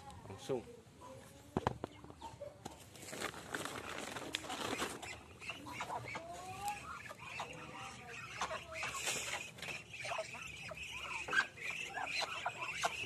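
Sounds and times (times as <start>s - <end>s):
shuffling and rustling: 2.7s - 5.2s
ducks squeaky calls: 4.6s - 13.0s.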